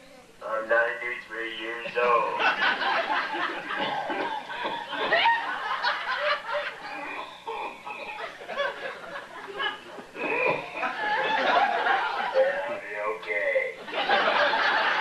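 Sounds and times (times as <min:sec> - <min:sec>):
man's voice from cassette tape: 0:00.4 - 0:02.5, 0:12.4 - 0:13.8
people chuckling and snickering: 0:02.4 - 0:12.5, 0:13.8 - 0:15.0.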